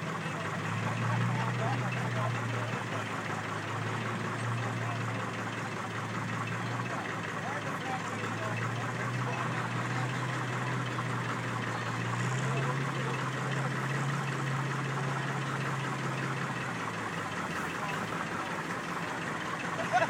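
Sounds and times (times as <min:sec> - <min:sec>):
tractor engine under load: 0:00.0 - 0:20.0.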